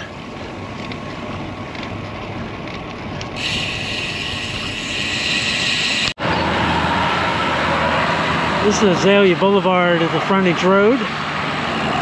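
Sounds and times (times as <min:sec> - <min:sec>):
bike tyres on concrete: 0:00.0 - 0:06.2
bright hiss: 0:03.4 - 0:06.2.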